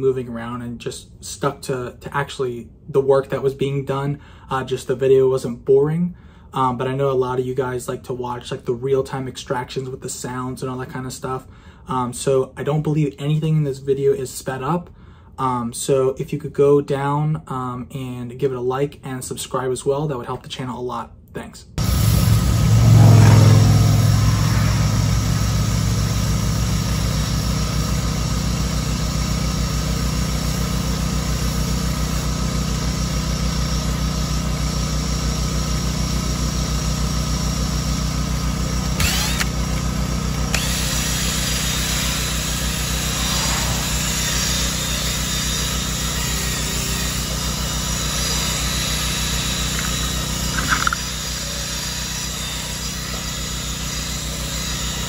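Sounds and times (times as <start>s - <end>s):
motor humming: 21.8s - 55.0s.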